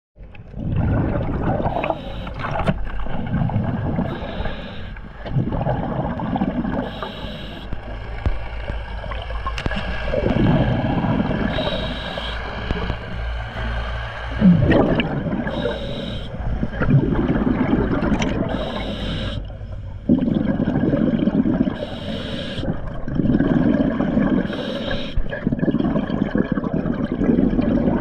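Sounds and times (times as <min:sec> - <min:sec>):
bubbling rumble underwater: 0:00.2 - 0:28.0
steady water noise: 0:00.2 - 0:28.0
diver breathing through regulator: 0:01.7 - 0:02.6, 0:03.2 - 0:05.3, 0:06.3 - 0:07.9, 0:10.4 - 0:17.8, 0:18.4 - 0:19.5, 0:21.2 - 0:22.8, 0:24.3 - 0:25.3.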